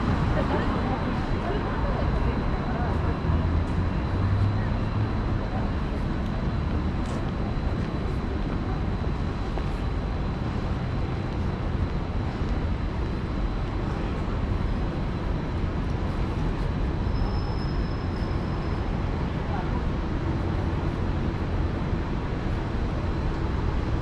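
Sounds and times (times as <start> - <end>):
road traffic hum: 0.0 - 24.0.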